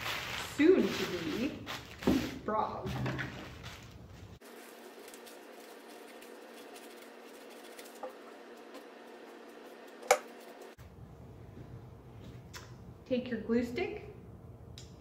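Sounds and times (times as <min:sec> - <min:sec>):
paper rustle: 0:00.0 - 0:10.8.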